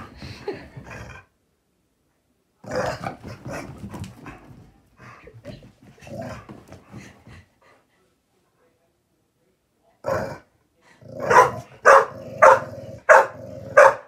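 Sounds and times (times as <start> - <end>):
dogs growling in play: 0.2 - 1.4, 2.6 - 7.4, 10.0 - 13.8.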